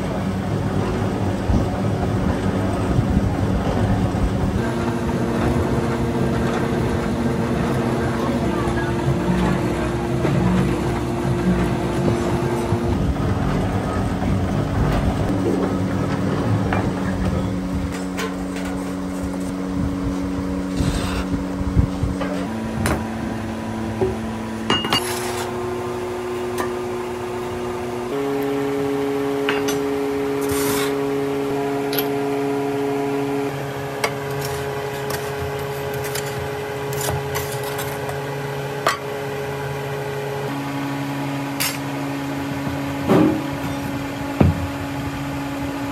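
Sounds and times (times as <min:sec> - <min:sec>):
knocks and clinks of sand packing: 0:34.0 - 0:38.2.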